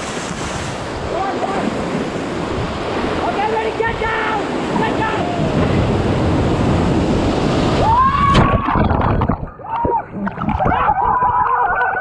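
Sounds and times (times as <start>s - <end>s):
rushing splashing river water: 0.0s - 11.4s
muffled underwater gurgling: 8.6s - 11.0s.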